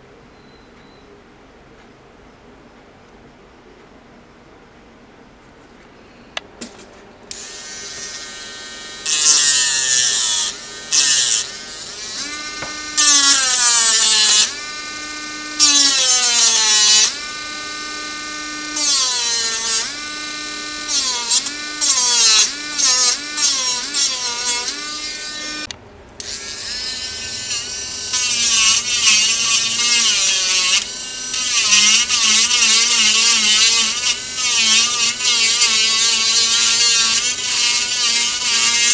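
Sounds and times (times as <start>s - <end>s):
rotary tool cutting plastic: 9.0s - 38.9s.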